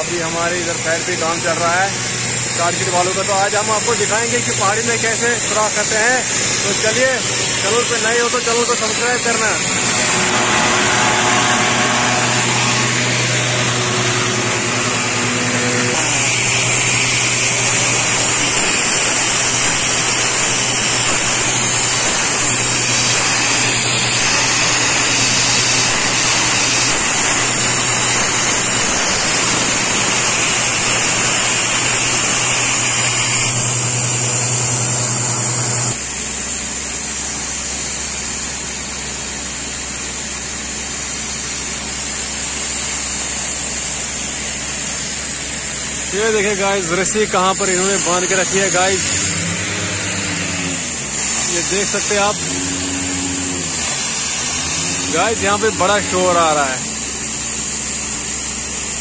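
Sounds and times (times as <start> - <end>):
air compressor running: 0.0 - 59.0
compressed-air rock drill: 0.0 - 59.0.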